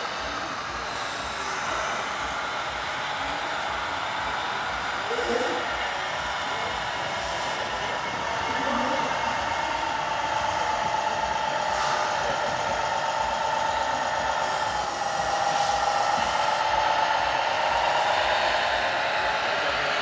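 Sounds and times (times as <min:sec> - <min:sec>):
high hiss: 0:00.0 - 0:20.0.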